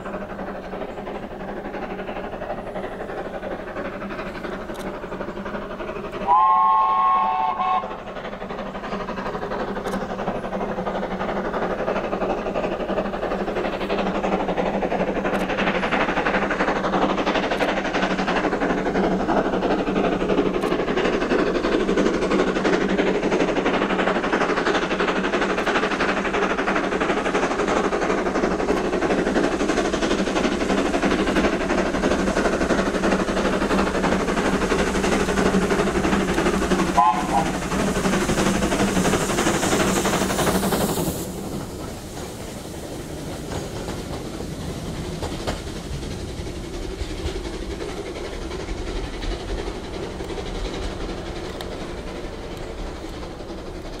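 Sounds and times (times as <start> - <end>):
steam locomotive exhaust chuffing: 0.0 - 54.0
steam locomotive whistle: 6.2 - 8.0, 36.9 - 37.6.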